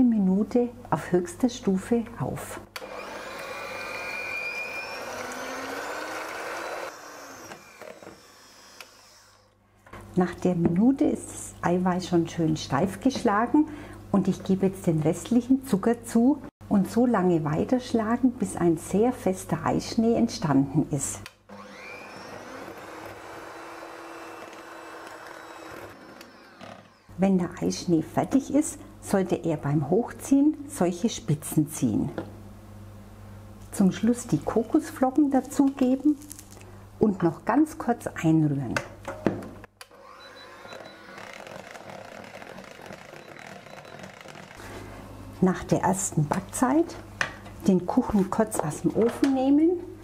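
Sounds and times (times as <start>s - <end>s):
electric hand mixer whining: 2.8s - 9.6s, 21.5s - 27.2s, 39.9s - 44.6s.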